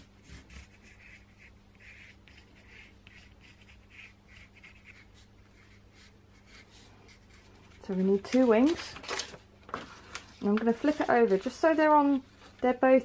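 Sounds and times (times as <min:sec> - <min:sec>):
pencil scratching on cardboard: 0:00.0 - 0:08.7.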